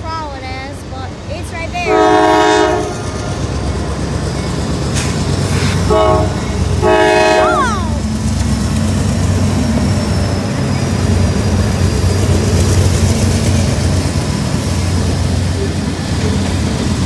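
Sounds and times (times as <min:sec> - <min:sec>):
freight train cars rumbling: 0:00.0 - 0:17.0
locomotive horn blasts: 0:01.8 - 0:03.1, 0:05.8 - 0:07.6.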